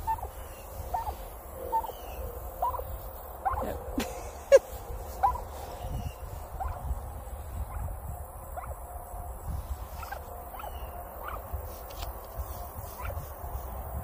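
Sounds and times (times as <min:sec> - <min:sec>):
turkey hen chirping softly: 0:00.0 - 0:03.8, 0:05.2 - 0:08.0, 0:08.6 - 0:08.8, 0:09.9 - 0:11.6.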